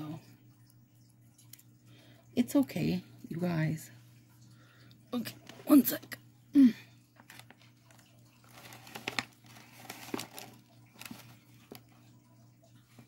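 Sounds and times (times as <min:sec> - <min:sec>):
packaging crinkling: 0:07.2 - 0:11.9.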